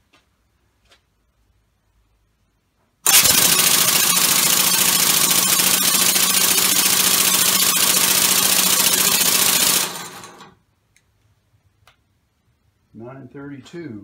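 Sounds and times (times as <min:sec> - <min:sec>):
valves and pistons clattering: 0:03.1 - 0:10.5.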